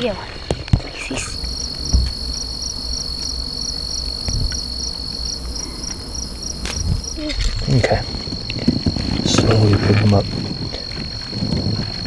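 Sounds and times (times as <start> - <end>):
crickets trilling: 0.0 - 12.0
handling rumble: 0.2 - 12.0
knock: 1.9 - 2.2.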